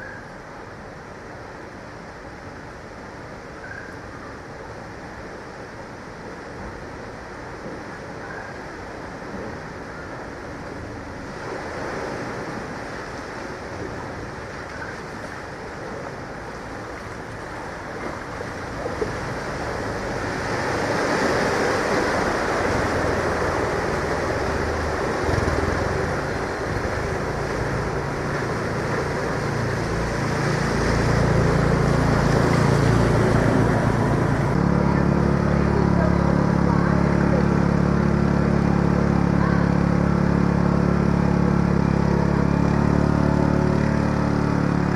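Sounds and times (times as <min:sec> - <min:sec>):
floodwater sloshing and splashing: 0:06.2 - 0:44.9
loud engine hum: 0:15.6 - 0:44.9
car engine running: 0:18.0 - 0:44.9.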